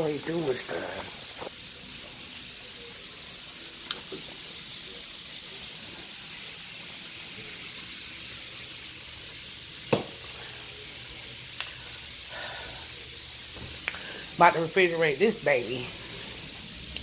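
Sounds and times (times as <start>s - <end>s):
wings sizzling in hot oil: 0.0s - 17.0s.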